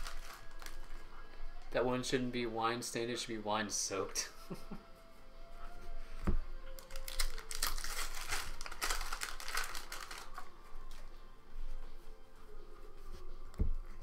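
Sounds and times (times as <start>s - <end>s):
trading cards rustling: 0.0s - 1.7s, 6.8s - 11.1s
faint background music: 0.0s - 14.0s.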